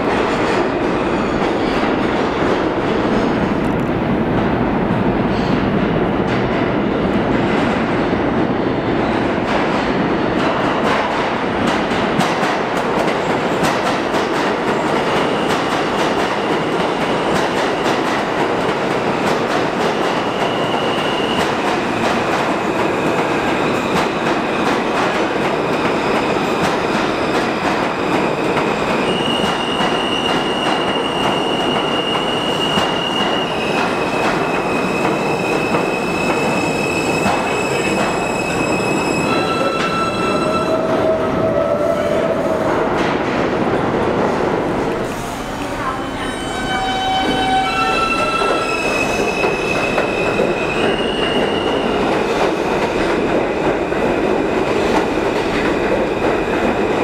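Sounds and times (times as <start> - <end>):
high brake squeal: 34.6 - 40.9, 46.0 - 52.0.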